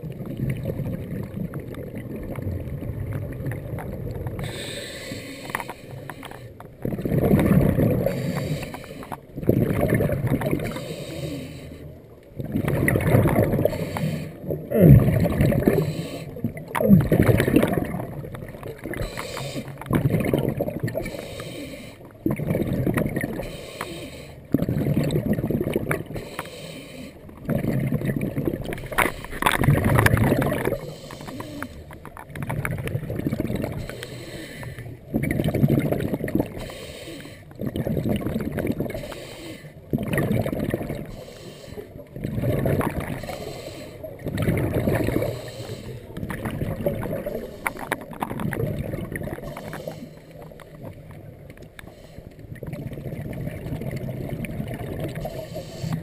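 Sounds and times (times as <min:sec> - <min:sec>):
bubbling exhales: 0:00.0 - 0:56.0
diver breathing through regulator: 0:04.4 - 0:06.7, 0:08.0 - 0:09.2, 0:10.5 - 0:12.0, 0:13.4 - 0:16.5, 0:18.9 - 0:19.9, 0:20.9 - 0:22.2, 0:23.3 - 0:24.5, 0:26.0 - 0:27.4, 0:28.6 - 0:29.7, 0:30.4 - 0:32.1, 0:33.6 - 0:35.0, 0:36.5 - 0:37.6, 0:38.8 - 0:39.8, 0:41.0 - 0:42.1, 0:43.0 - 0:44.3, 0:45.0 - 0:46.4, 0:47.0 - 0:48.2, 0:49.3 - 0:50.7, 0:51.8 - 0:52.6, 0:55.1 - 0:56.0.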